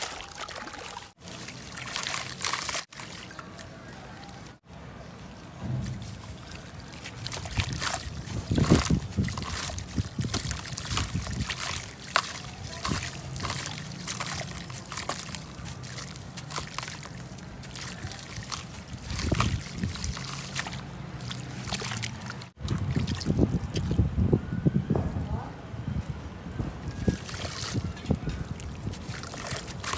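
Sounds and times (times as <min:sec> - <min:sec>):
water splashing and sloshing: 0:00.0 - 0:24.2, 0:26.7 - 0:29.9
wet crackling and crumbling: 0:05.8 - 0:22.6, 0:27.0 - 0:29.9.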